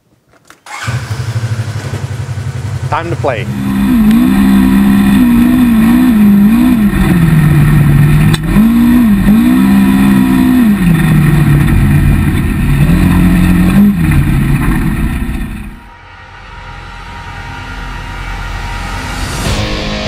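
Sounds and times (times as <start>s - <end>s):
engine revving while driving: 2.8s - 15.9s.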